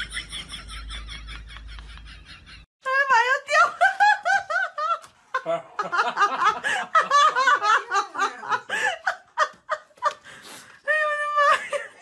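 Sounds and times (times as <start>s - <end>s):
people laughing and snickering: 0.0s - 2.7s, 4.0s - 10.6s.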